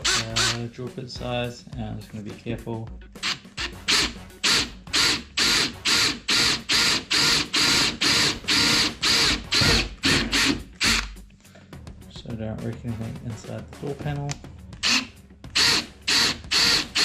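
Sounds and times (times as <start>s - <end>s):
cordless drill bursts: 0.0s - 0.6s, 3.2s - 11.2s, 14.8s - 17.0s.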